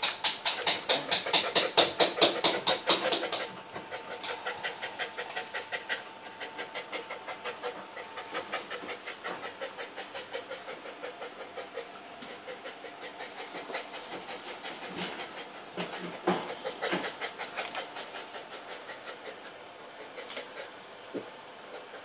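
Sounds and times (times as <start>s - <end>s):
dog panting rapidly: 0.0s - 22.0s.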